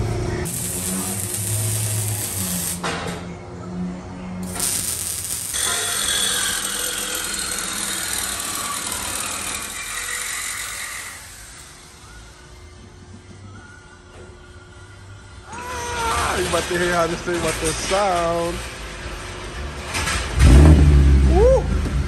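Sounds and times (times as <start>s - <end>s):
arc welding crackling hiss: 0.4s - 2.9s, 4.4s - 12.3s.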